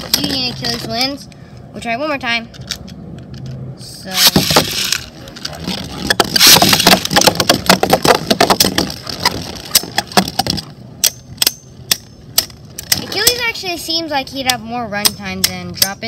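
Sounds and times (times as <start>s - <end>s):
spinning tops grinding on plastic: 4.2s - 5.1s, 5.8s - 10.4s.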